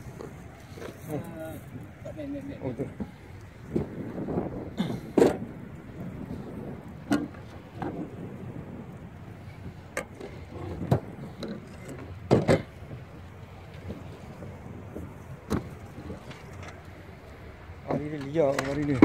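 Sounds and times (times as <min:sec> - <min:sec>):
low rumble: 0:00.0 - 0:17.9
knocks on wooden boat: 0:12.3 - 0:12.7.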